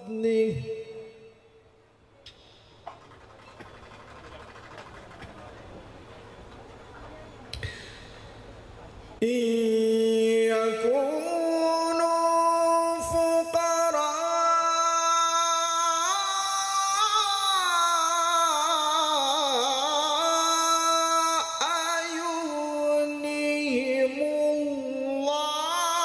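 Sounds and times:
man chanting religious melody: 9.2 - 26.0.

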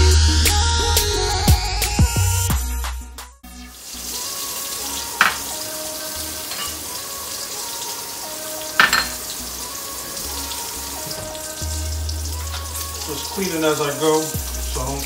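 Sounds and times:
chicken sizzling in oil: 3.6 - 15.0
glass bowls clinking on countertop: 5.2 - 5.5, 6.5 - 6.8, 8.8 - 9.3.

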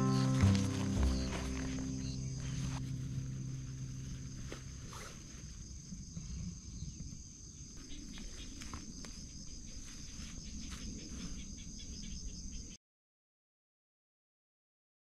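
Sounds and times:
low rumble: 0.0 - 6.7
insects trilling: 0.0 - 12.8.

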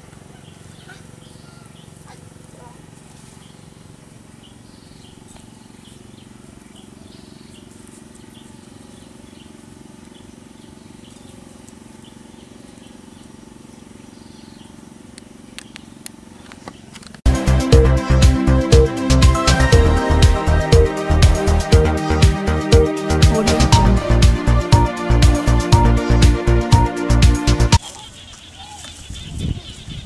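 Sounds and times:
loud electronic music: 17.3 - 27.8
low hum: 17.3 - 27.8.

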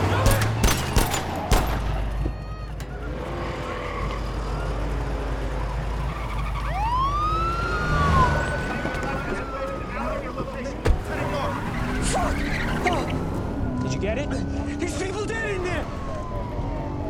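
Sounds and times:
gunshot: 0.2 - 2.0.

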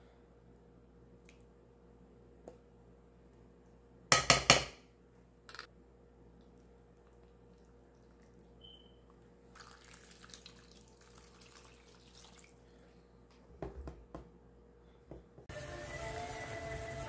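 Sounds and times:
water pouring into a pan: 9.6 - 12.9, 15.5 - 17.0
music: 15.5 - 17.0.

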